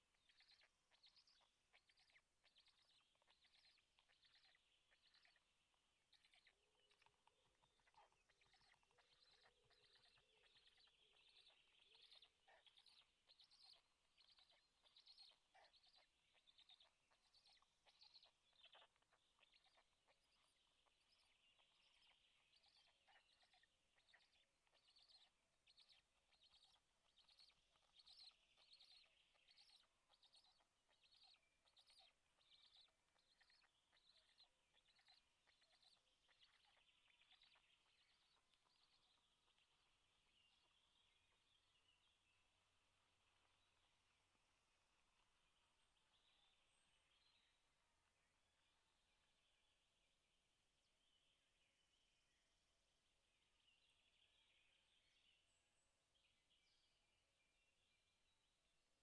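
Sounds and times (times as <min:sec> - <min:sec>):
faint songbirds chirping: 0:00.0 - 0:59.0.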